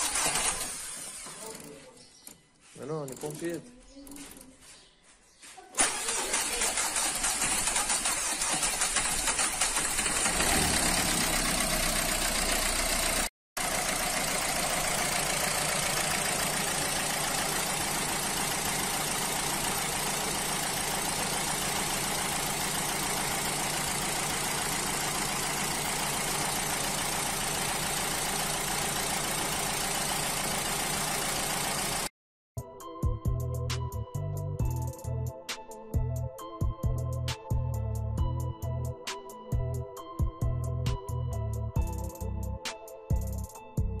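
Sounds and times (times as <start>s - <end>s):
diesel engine idling: 5.8s - 32.1s.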